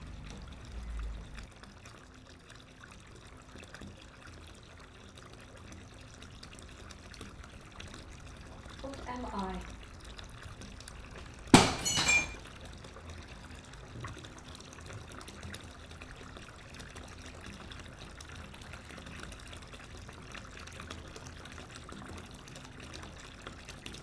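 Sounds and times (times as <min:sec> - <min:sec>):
water trickling: 0:00.0 - 0:24.0
glass frames crashing and breaking: 0:11.5 - 0:12.4.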